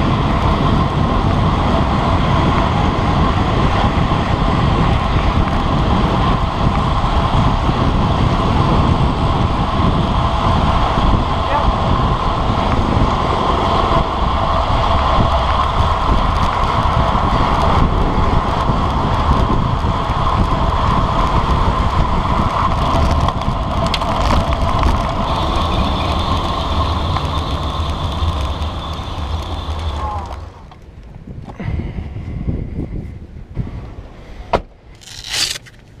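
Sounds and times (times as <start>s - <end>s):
bicycle tyre and road noise: 0.0s - 36.0s
wind over microphone: 0.0s - 36.0s.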